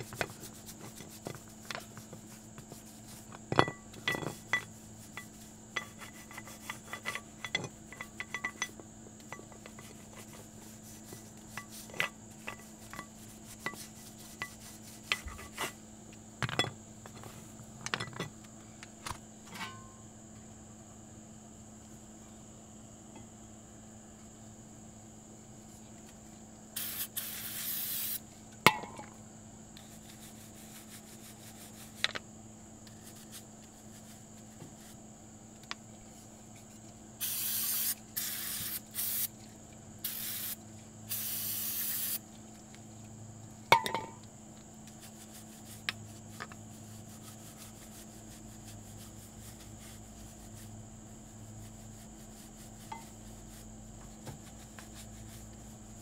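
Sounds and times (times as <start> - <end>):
aerosol can spraying: 26.8 - 28.2, 37.2 - 39.3, 40.0 - 42.2.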